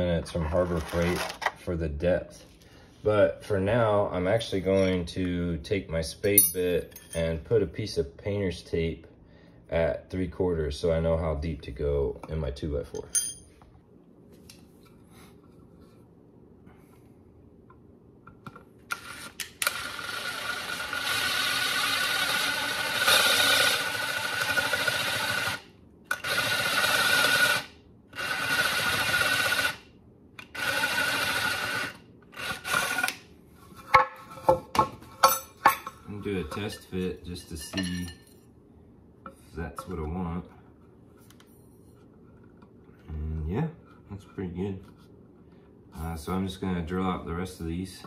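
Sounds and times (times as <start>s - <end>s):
cordless drill boring into wood: 18.9s - 29.8s, 30.5s - 33.2s.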